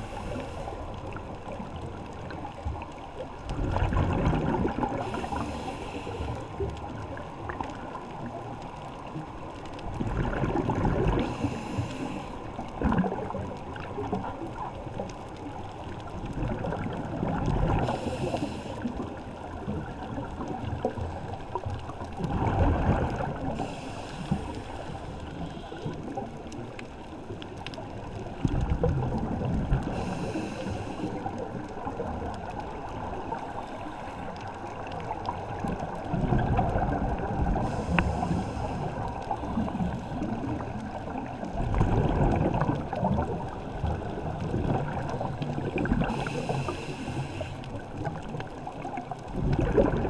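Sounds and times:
rush of bubbles: 0:01.1 - 0:05.8, 0:09.9 - 0:11.8, 0:12.6 - 0:15.0, 0:16.1 - 0:26.7, 0:34.7 - 0:50.0
regulator hiss on inhalation: 0:05.1 - 0:06.5, 0:11.3 - 0:12.4, 0:17.8 - 0:18.9, 0:23.6 - 0:25.8, 0:29.9 - 0:31.3, 0:37.6 - 0:39.0, 0:46.0 - 0:47.6.

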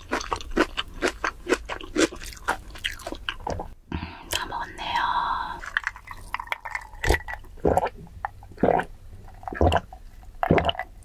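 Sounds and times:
loud gulping swallows: 0:05.6 - 0:11.0.

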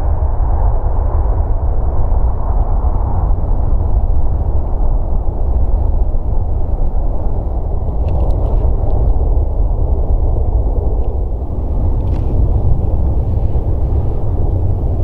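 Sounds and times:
jet engines deep rumble: 0:00.0 - 0:15.0.

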